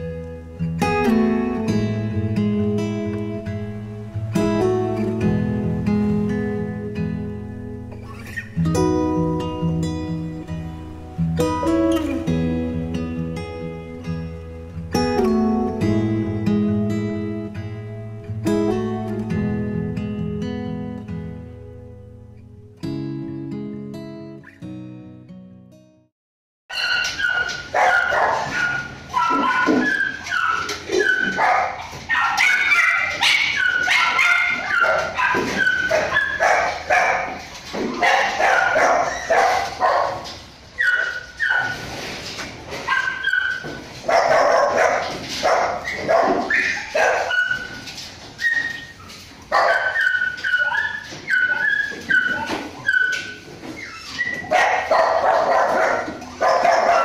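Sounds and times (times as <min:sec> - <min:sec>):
dogs barking and yelping: 0:08.0 - 0:08.6, 0:26.7 - 0:57.0.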